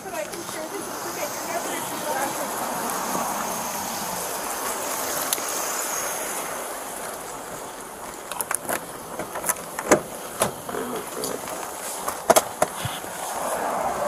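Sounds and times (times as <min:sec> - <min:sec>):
steady rushing noise: 0:00.0 - 0:14.0
car door unlatching and opening: 0:08.3 - 0:13.1.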